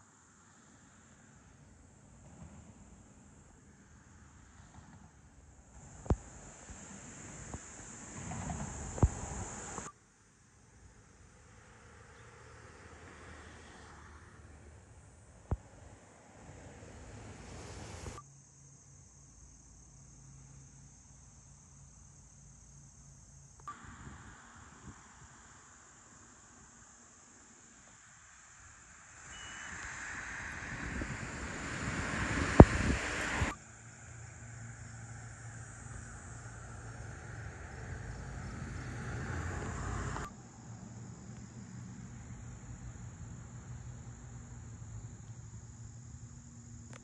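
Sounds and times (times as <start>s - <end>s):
crickets chirring: 0.0s - 47.0s
low rumble of road traffic: 0.0s - 47.0s
insects buzzing: 0.1s - 47.0s
wind on microphone: 6.0s - 9.9s, 23.7s - 25.4s, 29.7s - 33.6s.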